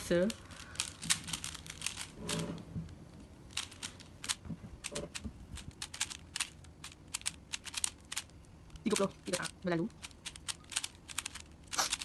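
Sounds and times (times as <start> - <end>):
puzzle cube layers clicking: 0.1 - 2.6, 3.5 - 12.0.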